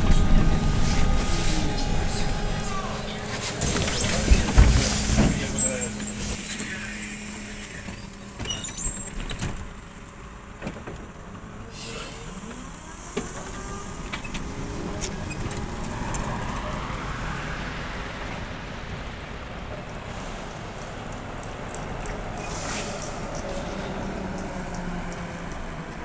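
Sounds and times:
bus doors closing with knocks: 0.0 - 16.8
trolleybus motor whine: 0.0 - 26.0.

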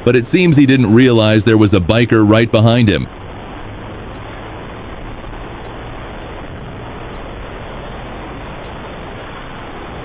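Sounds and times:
wind and road noise: 0.0 - 10.0
motorcycle engine running: 2.9 - 10.0.

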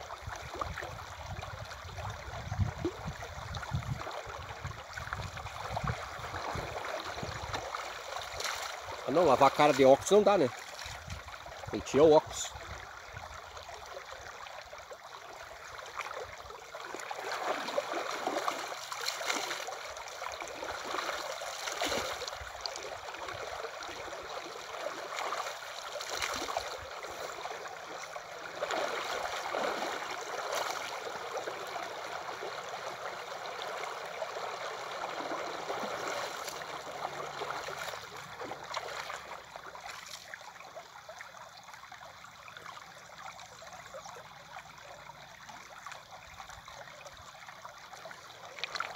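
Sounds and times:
river water flowing: 0.0 - 48.9
hand splashing water: 17.2 - 19.8, 25.0 - 31.2.

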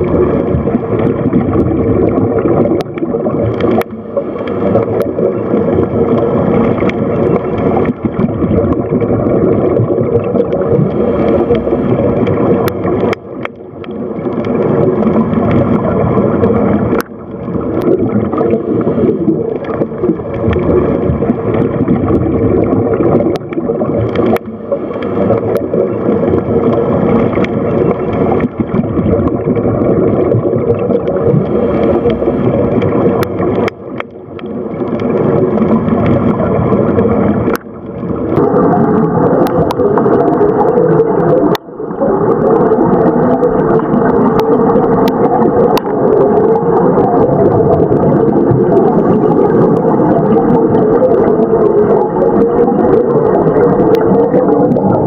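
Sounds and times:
underwater water rushing and gurgling: 0.0 - 55.0
faint clicks: 2.1 - 8.8, 10.2 - 15.8, 16.4 - 41.7.

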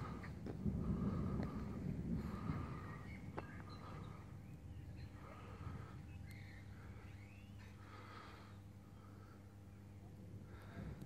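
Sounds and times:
low uneven rumble: 0.0 - 11.0.

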